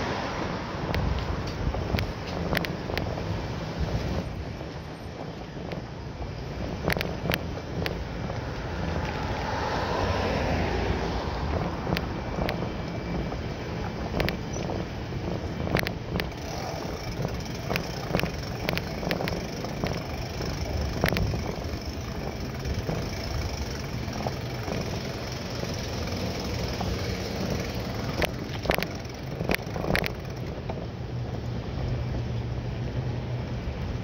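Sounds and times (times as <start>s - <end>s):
low rumble of bike: 0.0s - 34.0s
rushing wind noise: 0.0s - 34.0s
sharp clicks and knocks: 0.9s - 3.1s, 6.8s - 8.0s, 14.1s - 14.7s, 15.7s - 16.4s, 17.1s - 30.8s.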